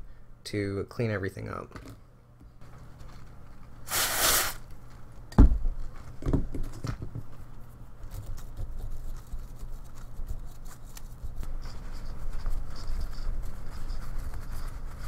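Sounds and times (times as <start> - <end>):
aerosol spray hiss: 3.9 - 4.6.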